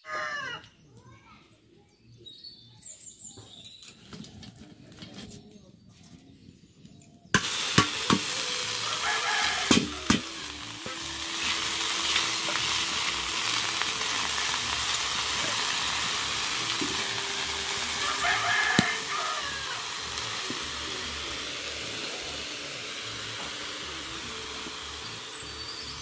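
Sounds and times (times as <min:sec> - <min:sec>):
leaves sizzling in hot oil: 0:07.4 - 0:26.0.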